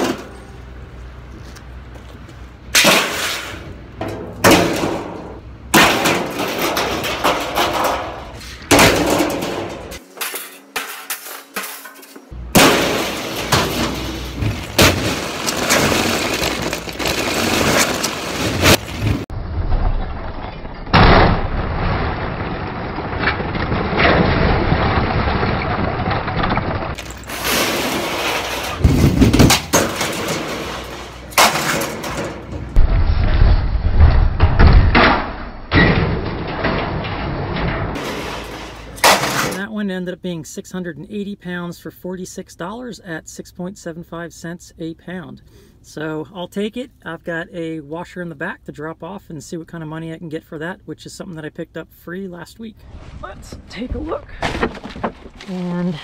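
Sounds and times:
scrap metal clanking: 2.7 - 19.3, 26.8 - 32.8, 33.4 - 39.7
rumbling: 12.4 - 39.6, 52.8 - 56.0.

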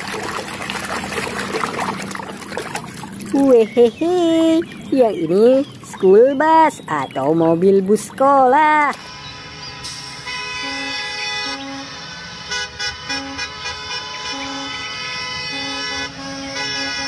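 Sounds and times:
bus horns held chord: 9.0 - 17.0
short horn honks: 9.0 - 17.0.

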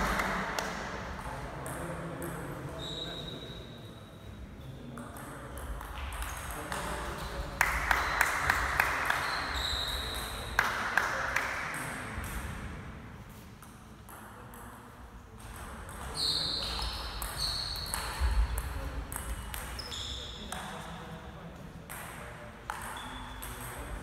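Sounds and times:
table tennis ball hits: 17.2 - 19.8, 21.9 - 24.0.

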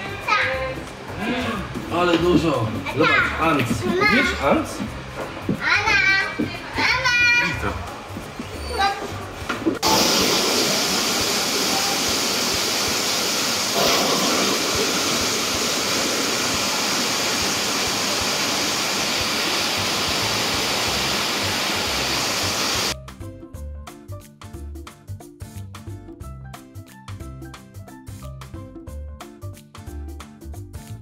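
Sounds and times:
water splashing into pond: 9.8 - 23.0
music with a beat: 23.0 - 31.0.

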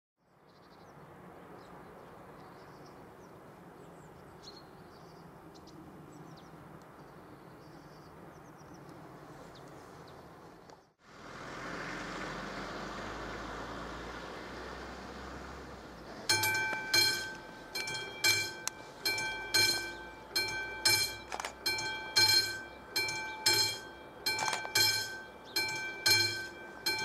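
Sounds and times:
car driving past: 11.0 - 21.4.

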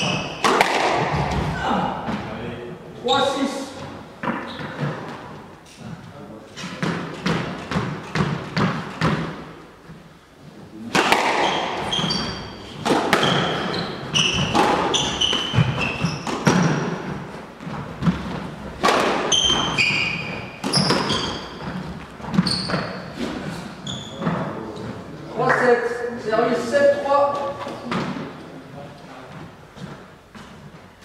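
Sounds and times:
shoes squeaking on hardwood floor: 0.0 - 2.2, 3.7 - 9.2, 11.2 - 25.2
squash ball hitting rackets and walls: 0.0 - 2.3, 3.7 - 5.5, 6.6 - 10.0, 10.8 - 25.8, 27.3 - 28.4.

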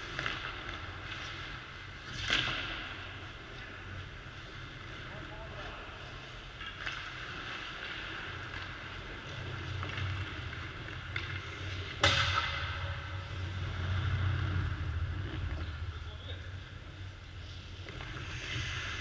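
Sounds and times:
skate blades scraping ice: 0.0 - 12.0, 17.0 - 19.0
low hum: 7.2 - 19.0
puck strike crack: 11.2 - 13.2.

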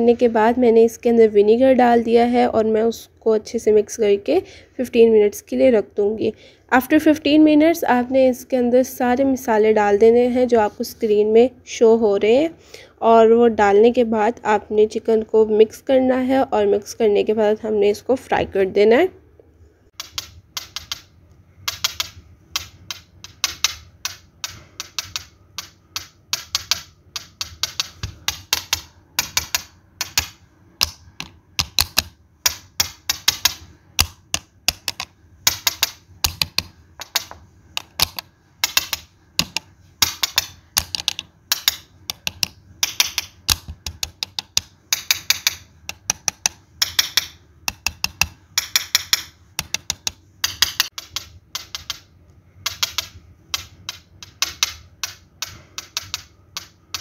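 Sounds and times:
sharp clicks in quick clusters: 19.9 - 57.0.

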